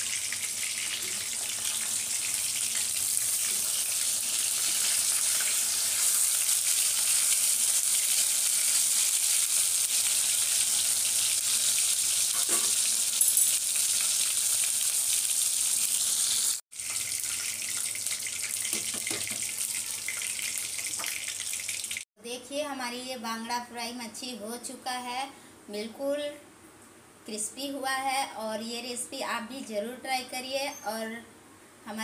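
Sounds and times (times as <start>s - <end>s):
fish sizzling in oil: 0.0s - 22.1s.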